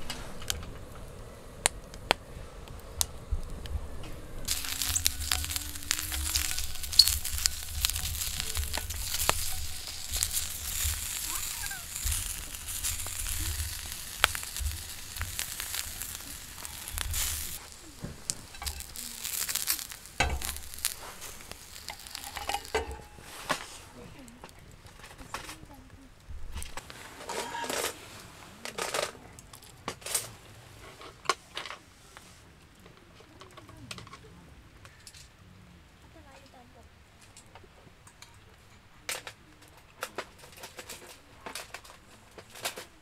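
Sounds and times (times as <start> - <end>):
sharp pops and crackles: 0.0 - 28.0, 37.2 - 43.0
sausages sizzling in frying pan: 2.7 - 23.8.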